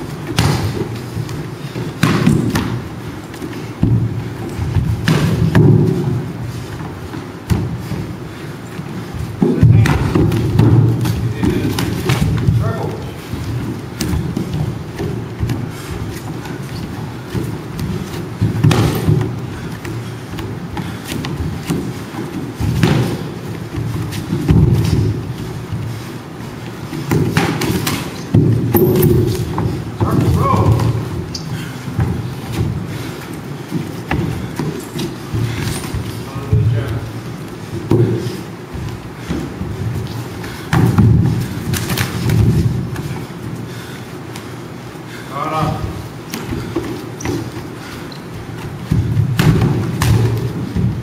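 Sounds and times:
footwork on wooden floor: 0.0s - 51.0s
kickboxing strikes thudding: 0.2s - 2.9s, 3.8s - 6.4s, 17.3s - 19.5s, 20.4s - 25.8s, 27.0s - 31.2s, 48.7s - 51.0s.

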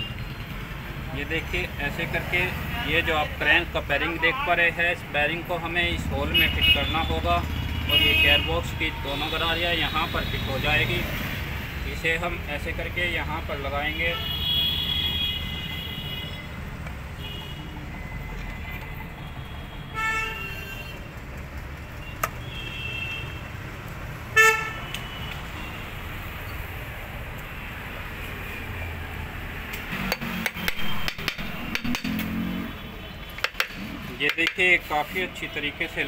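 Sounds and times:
street traffic rumble: 0.0s - 36.0s
vehicle horn tooting: 19.3s - 21.0s
metal clicks and knocks: 33.4s - 34.6s.

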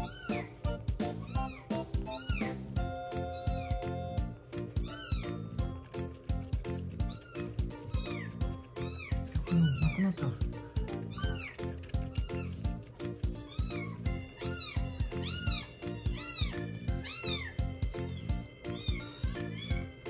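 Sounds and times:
background music with steady beat: 0.0s - 20.0s
kitten mewing: 7.1s - 10.5s.

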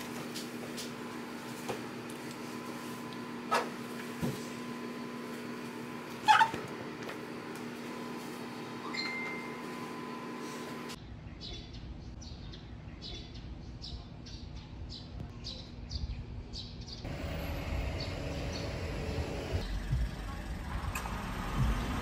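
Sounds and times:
indoor room hum: 0.0s - 22.0s
bird chirping: 11.2s - 18.9s
low outdoor rumble: 17.1s - 22.0s.

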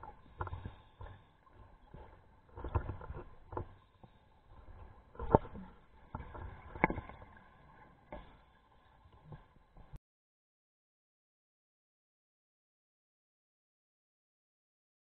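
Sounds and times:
underwater knocks and clicks: 0.0s - 8.4s
underwater bubbling: 0.0s - 10.0s.

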